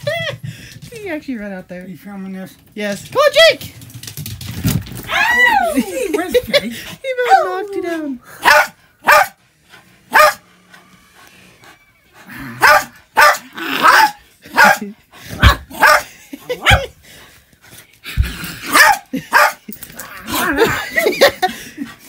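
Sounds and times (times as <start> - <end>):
dog barking: 8.4 - 9.4, 10.1 - 10.4, 12.6 - 16.9, 18.7 - 19.6.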